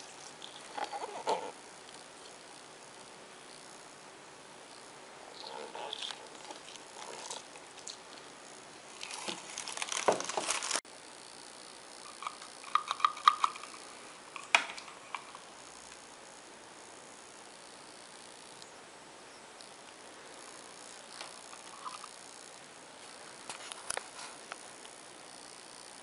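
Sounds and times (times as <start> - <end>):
plastic packaging crinkling: 5.8 - 8.2, 8.9 - 10.8, 12.1 - 13.8
sharp clicks and knocks: 12.1 - 13.8, 14.4 - 15.4.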